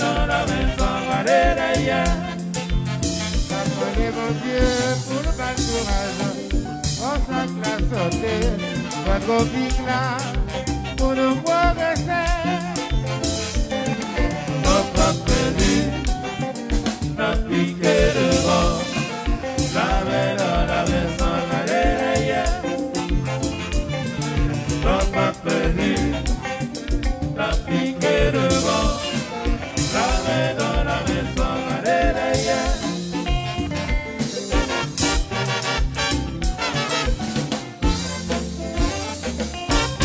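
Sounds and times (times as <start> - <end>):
people singing: 0.0 - 12.9, 13.8 - 23.4, 24.1 - 33.5
live dance band playing: 0.0 - 40.0.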